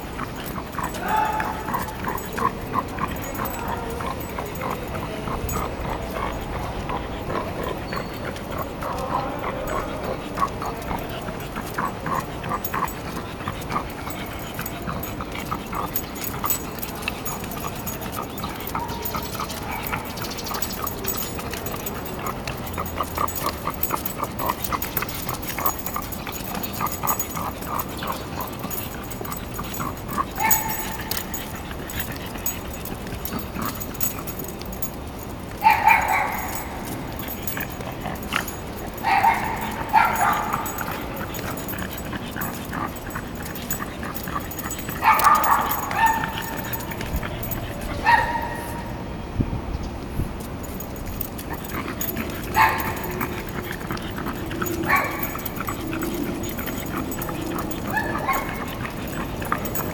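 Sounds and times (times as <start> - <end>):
dog barking: 0.8 - 4.8, 18.4 - 25.7, 29.0 - 32.1, 35.6 - 37.8, 39.0 - 41.6, 45.0 - 49.0, 51.6 - 59.9.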